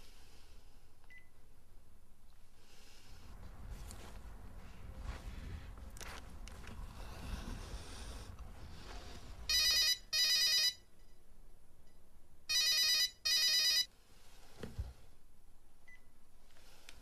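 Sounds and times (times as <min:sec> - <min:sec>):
telephone double ring: 0:09.5 - 0:10.8, 0:12.5 - 0:13.9.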